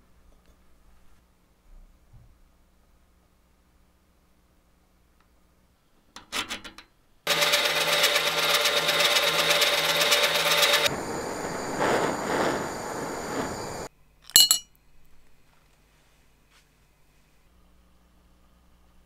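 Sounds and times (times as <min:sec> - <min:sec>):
lathe running: 0:07.3 - 0:11.6
gas torch hissing: 0:07.3 - 0:13.9
hot metal sizzling in liquid: 0:07.3 - 0:13.9.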